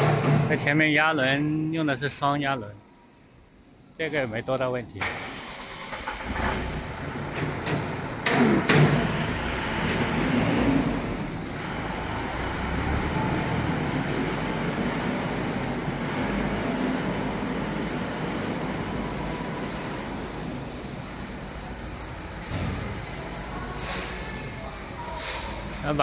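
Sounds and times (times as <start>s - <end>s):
sharp knocks and clanks: 0.0s - 0.8s, 7.3s - 10.7s
factory machinery noise: 0.0s - 26.0s.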